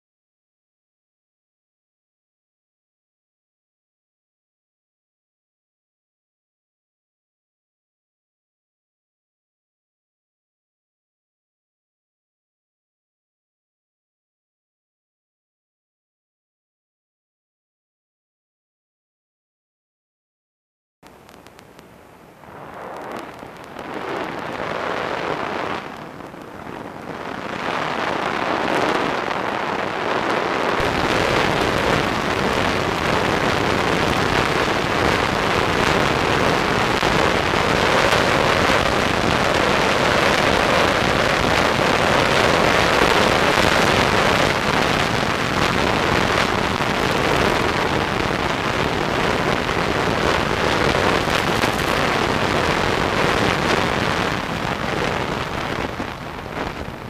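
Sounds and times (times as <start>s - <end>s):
wind rushing over microphone: 21.1s - 57.0s.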